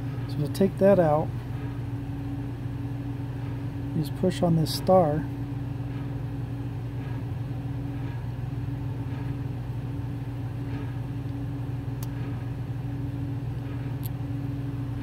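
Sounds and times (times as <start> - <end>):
low mechanical hum: 0.0 - 15.0
small sharp clicks: 14.0 - 14.2.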